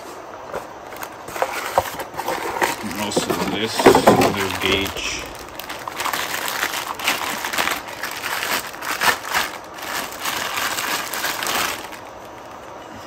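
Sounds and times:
packaging crinkling: 0:00.9 - 0:12.6.

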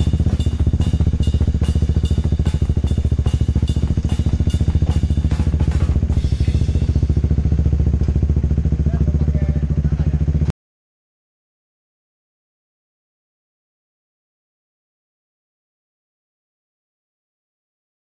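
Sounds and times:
regular clicking beat: 0:00.0 - 0:08.5
motorcycle engine running: 0:00.0 - 0:10.5.

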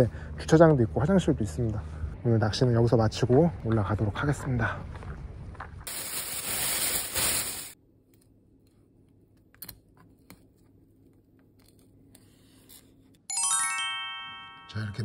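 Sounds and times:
loud rushing hiss: 0:05.9 - 0:07.8.

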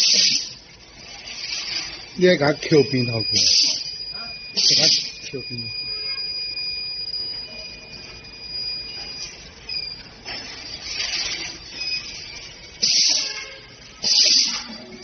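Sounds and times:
air hiss: 0:00.0 - 0:00.6, 0:04.6 - 0:05.2, 0:12.8 - 0:13.4, 0:14.0 - 0:14.7
high machine whine: 0:00.0 - 0:15.0
mechanical clatters: 0:09.1 - 0:15.0.

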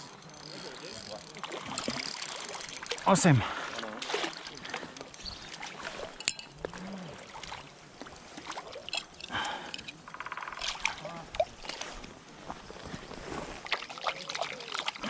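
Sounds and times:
rapid ticking rattle: 0:00.0 - 0:03.3
water splashing: 0:00.6 - 0:12.3, 0:13.2 - 0:15.0
small clicks and clinks: 0:04.0 - 0:06.9, 0:08.8 - 0:12.1.

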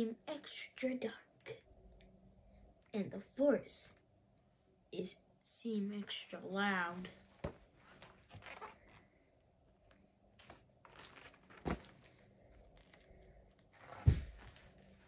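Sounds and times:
book pages turning: 0:07.4 - 0:09.1, 0:10.3 - 0:15.0.

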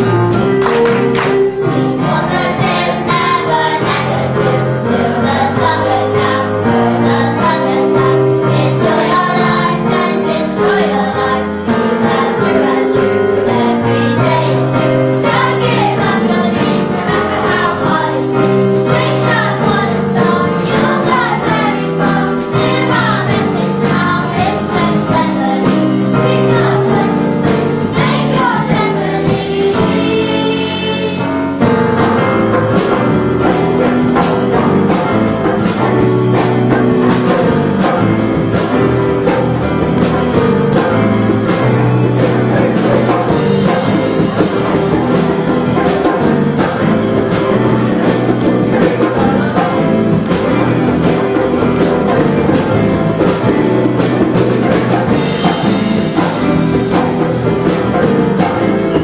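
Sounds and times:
children's choir singing: 0:00.0 - 0:59.0
digital keyboard piano: 0:00.0 - 0:59.0.

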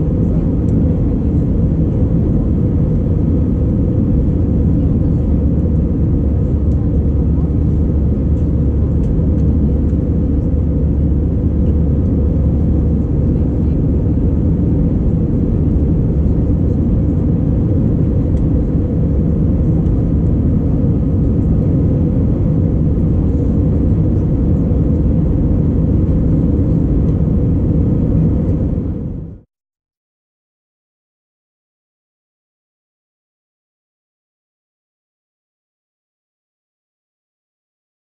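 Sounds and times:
jet engine drone: 0:00.0 - 0:29.5.

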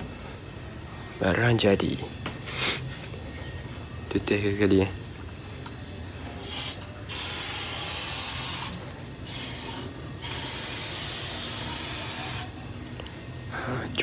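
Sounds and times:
spray gun hissing: 0:06.4 - 0:12.5.

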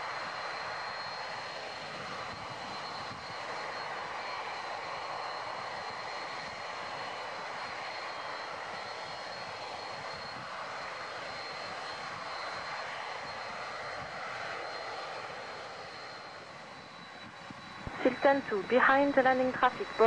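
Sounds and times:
jet engines at taxi power: 0:00.0 - 0:20.0
thin high whine: 0:17.0 - 0:20.0.

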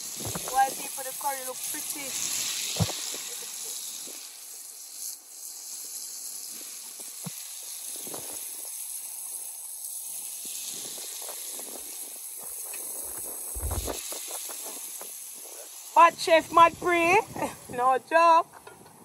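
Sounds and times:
steady outdoor hiss: 0:00.0 - 0:19.0.

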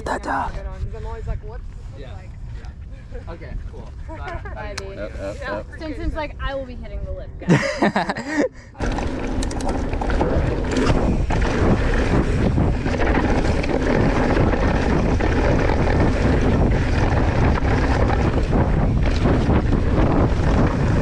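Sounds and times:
wind buffeting microphone: 0:00.0 - 0:21.0
bike rattling over bumps: 0:08.8 - 0:21.0
bike tyre noise on dirt: 0:08.8 - 0:21.0.

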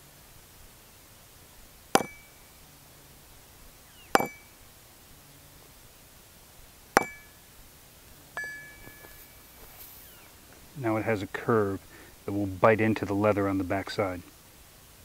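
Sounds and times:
hammer striking metal: 0:02.0 - 0:02.4, 0:04.1 - 0:04.5, 0:07.0 - 0:07.4, 0:08.4 - 0:09.0
metal clink: 0:02.0 - 0:02.5, 0:04.1 - 0:04.6, 0:07.0 - 0:07.4, 0:08.4 - 0:09.4.

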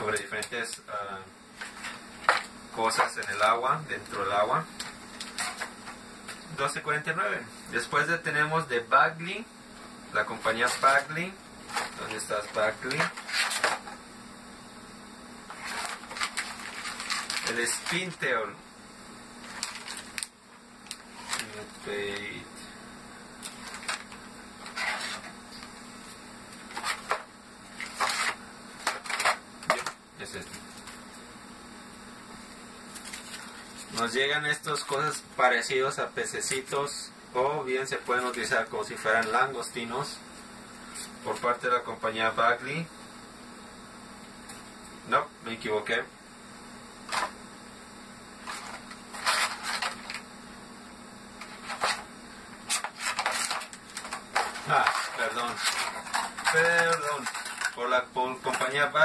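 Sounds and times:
plastic packaging crinkling: 0:04.8 - 0:06.4, 0:10.4 - 0:14.0, 0:15.5 - 0:18.2, 0:19.4 - 0:22.3, 0:23.4 - 0:25.7, 0:26.6 - 0:31.1, 0:32.9 - 0:34.1, 0:48.4 - 0:50.3, 0:51.4 - 0:57.8.

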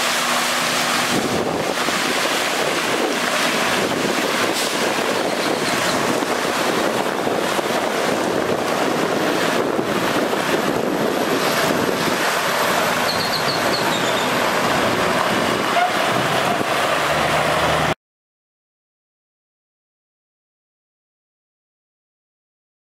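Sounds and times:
water spraying onto gravel: 0:00.0 - 0:17.5
diesel engine running: 0:00.0 - 0:18.0.

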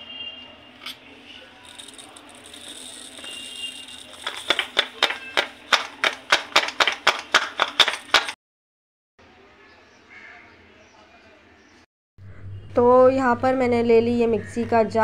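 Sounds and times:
seeds trickling through a funnel: 0:01.1 - 0:06.2
sharp taps: 0:04.3 - 0:08.4.

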